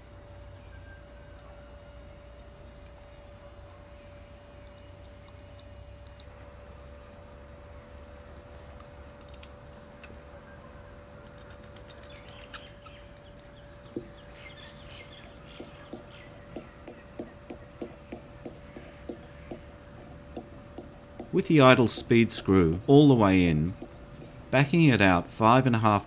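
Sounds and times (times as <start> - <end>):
faint steady hum: 0.0 - 26.0
small clicks and scraping: 8.4 - 10.2, 10.9 - 13.6.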